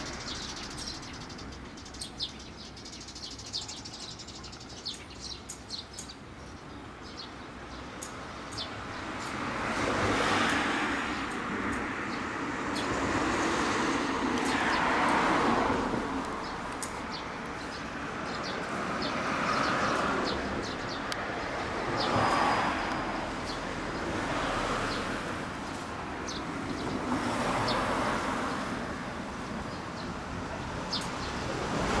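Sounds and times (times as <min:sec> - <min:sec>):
street traffic passing: 0:00.0 - 0:32.0.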